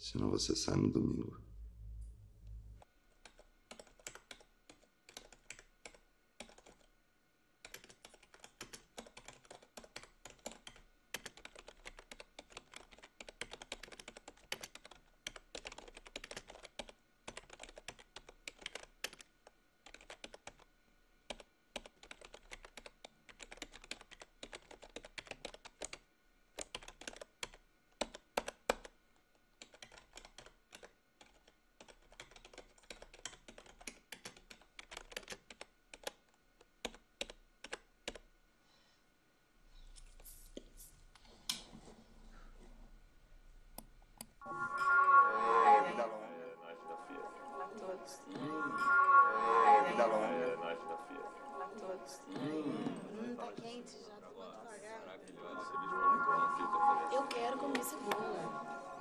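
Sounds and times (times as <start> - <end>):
typing on computer keyboard: 3.2 - 6.9, 7.6 - 20.7, 21.3 - 29.0, 29.6 - 38.3.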